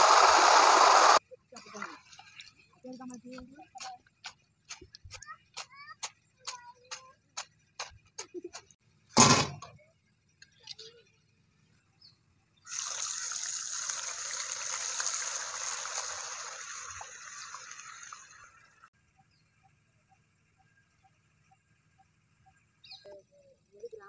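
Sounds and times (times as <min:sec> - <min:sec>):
hot oil sizzling: 0:00.0 - 0:01.2, 0:12.6 - 0:18.6.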